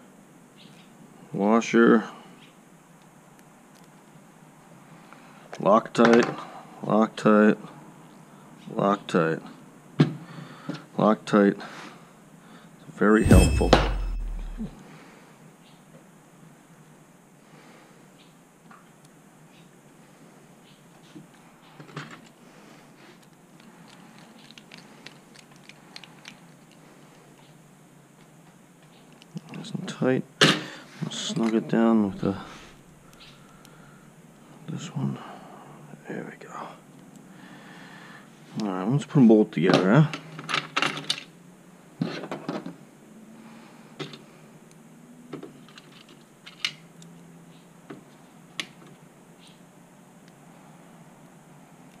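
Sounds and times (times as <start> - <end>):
small metal parts clicking: 23.6 - 26.8.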